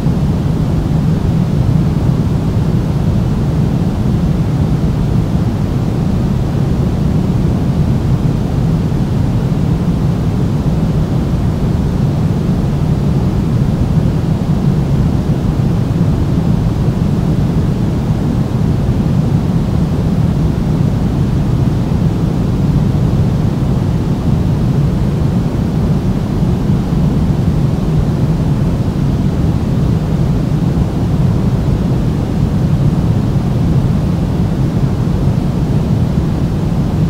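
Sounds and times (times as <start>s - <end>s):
pink noise hiss: 0.0s - 37.0s.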